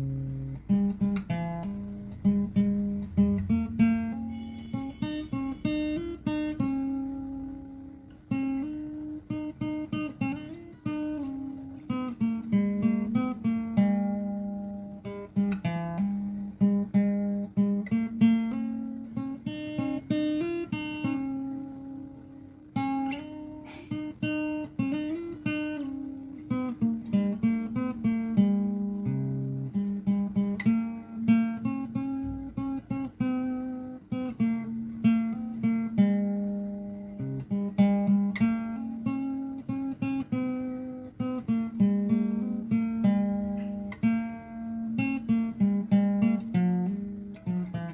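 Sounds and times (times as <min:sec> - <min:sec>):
acoustic guitar picking melody: 0:00.0 - 0:47.9.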